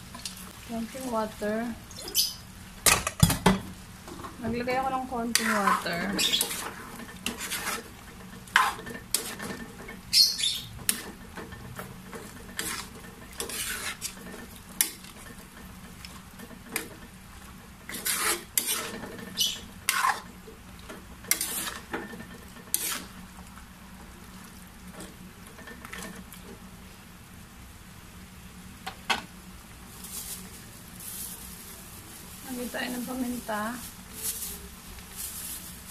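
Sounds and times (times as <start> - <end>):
sauce sizzling: 0.0 - 2.9, 3.6 - 28.7, 29.3 - 35.9
metal spoon scraping a frying pan: 5.2 - 15.6, 17.8 - 20.4, 21.2 - 23.2.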